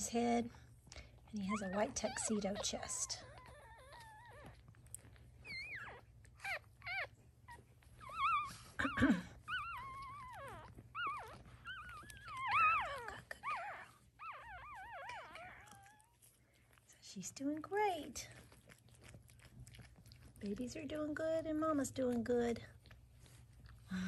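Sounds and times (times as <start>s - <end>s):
puppies squealing: 1.4s - 16.3s.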